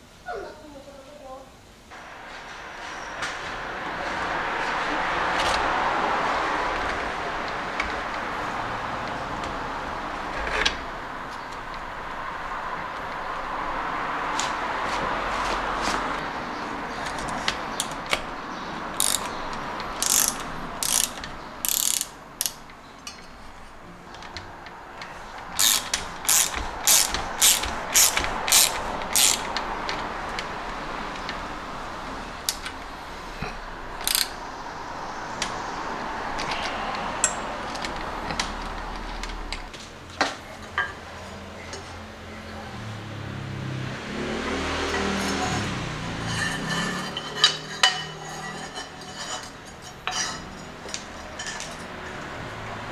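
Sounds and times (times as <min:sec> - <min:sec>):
ratcheting tool clicks: 0:19.0 - 0:19.4, 0:20.0 - 0:22.6, 0:25.6 - 0:29.6, 0:34.0 - 0:34.4.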